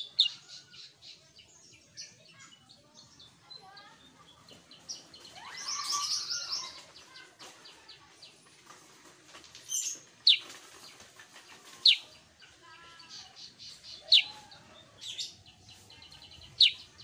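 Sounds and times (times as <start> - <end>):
bulbul chirping and chattering: 0.0 - 0.4, 9.8 - 12.2, 13.1 - 17.0.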